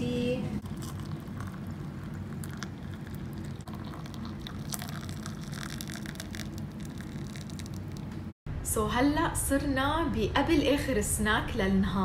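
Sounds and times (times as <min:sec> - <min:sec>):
hot water pouring into mugs: 0:00.6 - 0:08.0.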